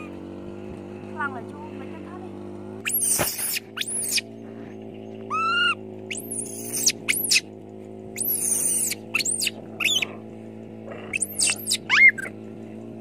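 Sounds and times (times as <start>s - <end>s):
steady low hum: 0.0s - 13.0s
baby monkey crying: 2.8s - 4.3s, 5.3s - 7.5s, 8.2s - 10.2s, 11.0s - 12.3s.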